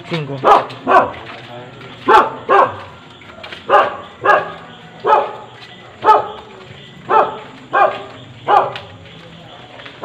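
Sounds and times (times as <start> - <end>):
dog barking: 0.4 - 1.3, 2.0 - 2.9, 3.6 - 6.5, 7.1 - 8.9.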